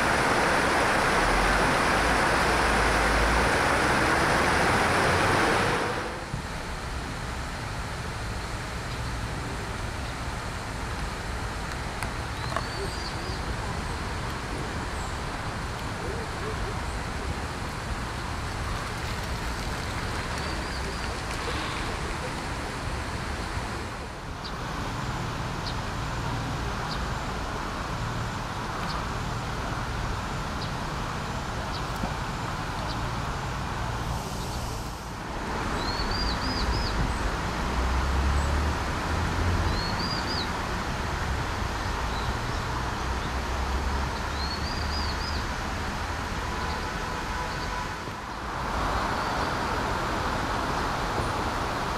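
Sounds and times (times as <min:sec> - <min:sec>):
road traffic rumble: 0:00.0 - 0:51.9
stream rushing over rocks: 0:00.0 - 0:51.9
birds chirping: 0:12.3 - 0:13.9, 0:19.7 - 0:22.6.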